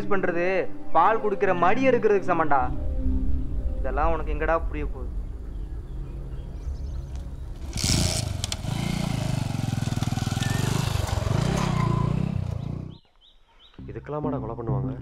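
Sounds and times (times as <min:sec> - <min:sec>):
motorcycle engine revving: 0:06.8 - 0:13.1.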